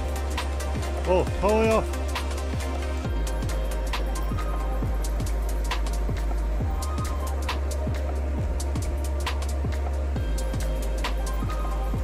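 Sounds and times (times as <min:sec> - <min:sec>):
sustained bass line: 0:00.0 - 0:12.0
kick drum: 0:03.1 - 0:03.7, 0:06.1 - 0:07.2, 0:07.9 - 0:09.0, 0:10.2 - 0:10.8, 0:11.4 - 0:12.0.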